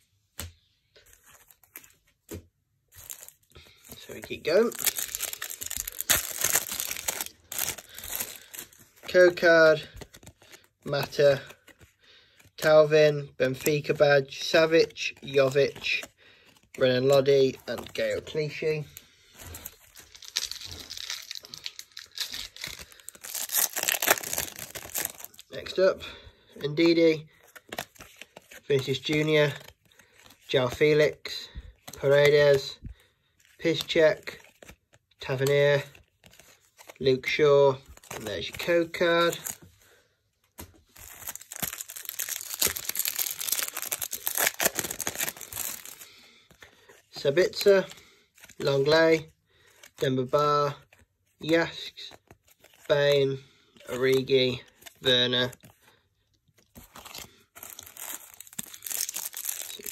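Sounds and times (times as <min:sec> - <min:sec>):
foil wrapper crinkling: 0:03.0 - 0:11.8, 0:14.5 - 0:25.9, 0:40.8 - 0:50.1, 0:56.6 - 0:59.9.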